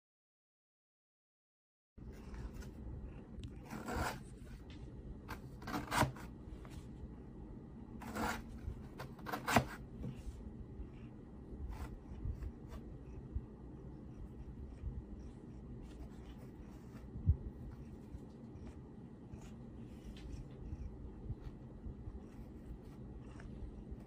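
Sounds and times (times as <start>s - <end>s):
cat claws scratching cardboard: 3.6s - 4.6s, 5.3s - 6.4s, 8.0s - 10.2s.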